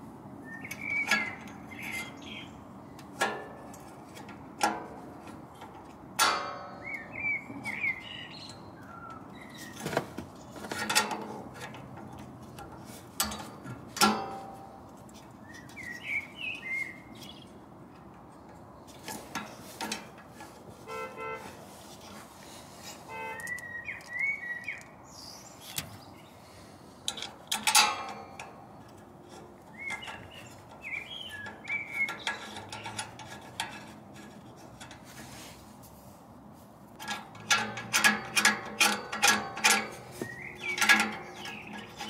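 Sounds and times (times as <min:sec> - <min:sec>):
small birds chirping: 0:00.4 - 0:03.2, 0:06.7 - 0:10.7, 0:15.1 - 0:19.7, 0:22.4 - 0:27.0, 0:28.7 - 0:33.3, 0:39.9 - 0:42.0.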